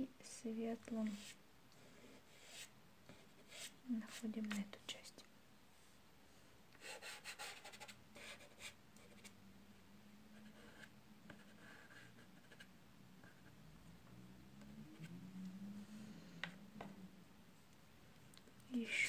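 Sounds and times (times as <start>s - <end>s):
pastel scratching on rough paper: 3.3s - 4.2s.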